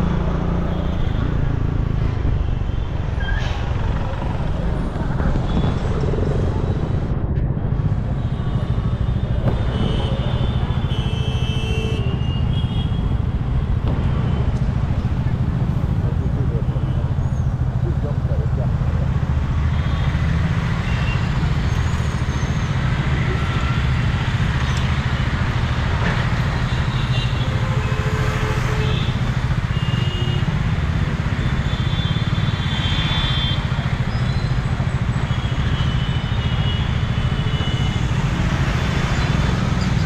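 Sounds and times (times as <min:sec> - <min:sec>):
traffic engines rumbling: 0:00.0 - 0:40.0.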